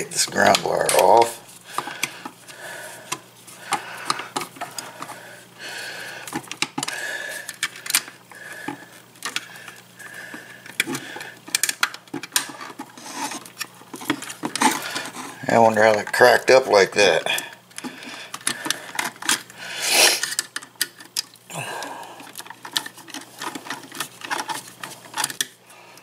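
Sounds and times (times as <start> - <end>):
screwdriver scraping: 22.2 - 25.5.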